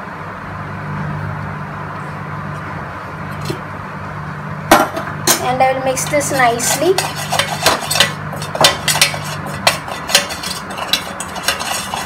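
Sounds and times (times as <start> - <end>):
spoon scraping metal bowl: 5.4 - 12.0.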